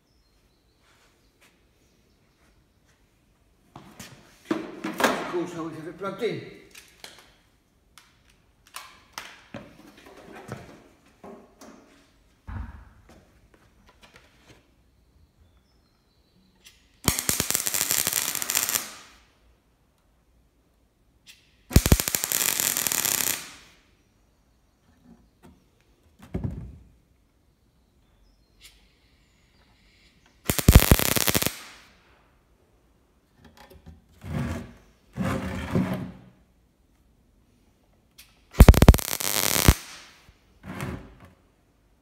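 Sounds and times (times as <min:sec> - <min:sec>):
arc welder crackling: 0:17.0 - 0:19.2, 0:21.7 - 0:23.8, 0:30.5 - 0:31.9, 0:38.6 - 0:40.2.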